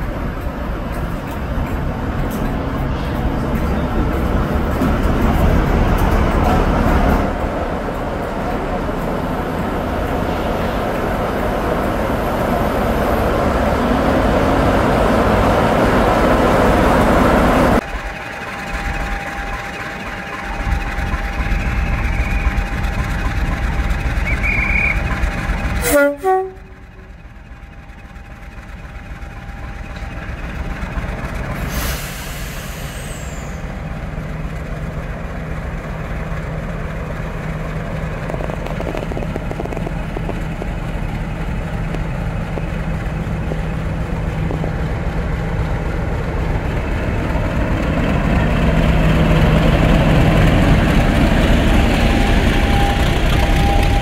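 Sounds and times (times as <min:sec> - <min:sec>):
diesel locomotive engine running: 0:00.0 - 0:54.0
clatter: 0:37.9 - 0:42.7.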